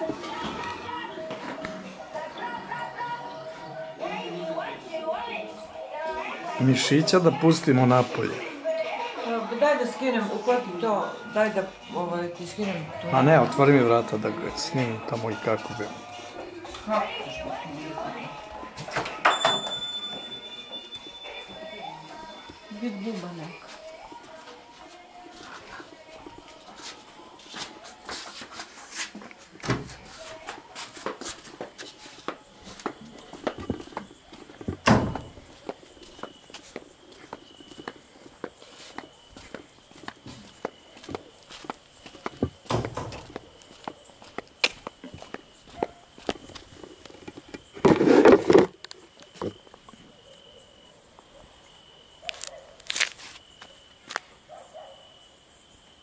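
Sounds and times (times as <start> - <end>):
footsteps: 0.0 - 49.9
loud rustling scuff: 26.7 - 43.9, 47.6 - 48.7
cricket trilling: 32.4 - 56.0.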